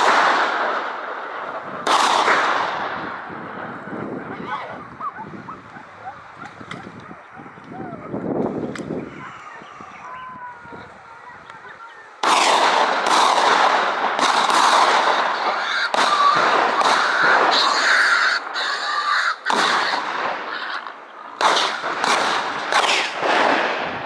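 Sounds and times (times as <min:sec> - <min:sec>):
gunshots echoing: 0:00.0 - 0:04.8, 0:12.2 - 0:18.6, 0:19.4 - 0:24.0.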